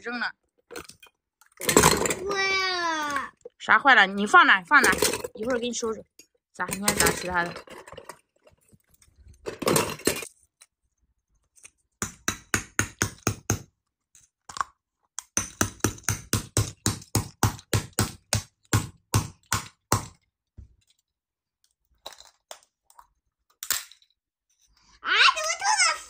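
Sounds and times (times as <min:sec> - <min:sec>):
toy hammer tapping plastic egg: 0:12.0 - 0:13.7, 0:15.2 - 0:20.2.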